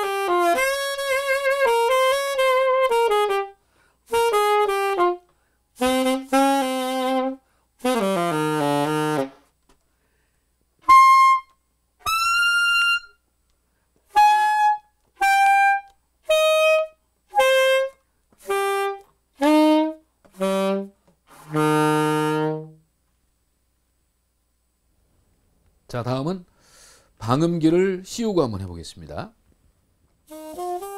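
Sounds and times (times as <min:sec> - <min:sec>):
alto saxophone playing: 0:00.0 - 0:09.6, 0:10.8 - 0:13.2, 0:14.1 - 0:22.9, 0:30.2 - 0:30.9.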